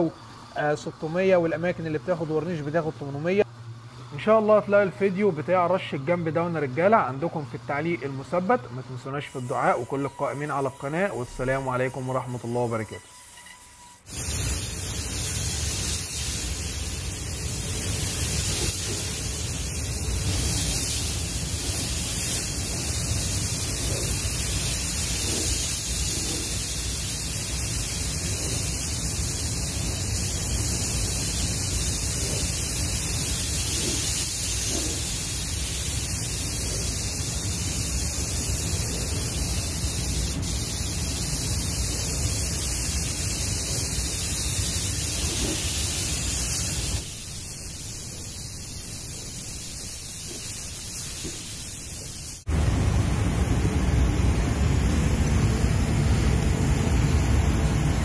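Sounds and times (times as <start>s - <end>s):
spray gun air hiss: 7.7s - 52.6s
spray booth air rushing: 7.7s - 52.7s, 54.4s - 58.0s.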